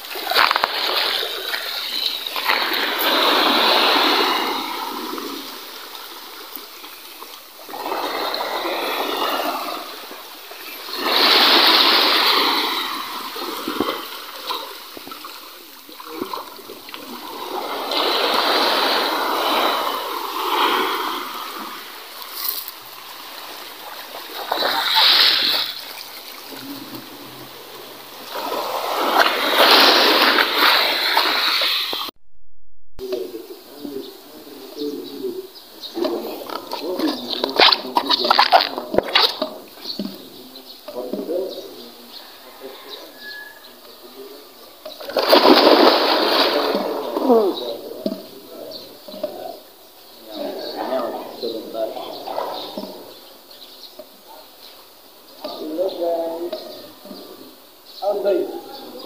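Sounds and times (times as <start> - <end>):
waves washing over pebble shore: 0.0 - 5.8, 10.8 - 14.3, 17.0 - 22.6, 28.2 - 32.1.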